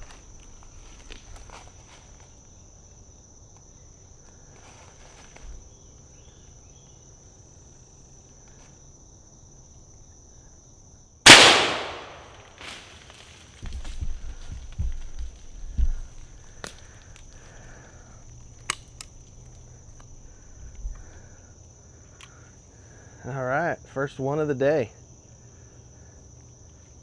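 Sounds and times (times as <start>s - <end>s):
loud gunshot echoing: 11.3s - 12.5s.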